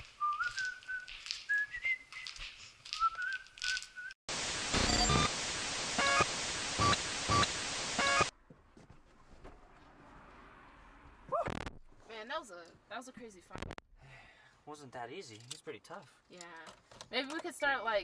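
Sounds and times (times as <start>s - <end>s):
person whistling a tune: 0.2s - 2.4s, 3.0s - 4.2s
loud television static hiss: 4.3s - 8.3s
short electronic beeps: 4.8s - 5.3s, 6.0s - 8.3s.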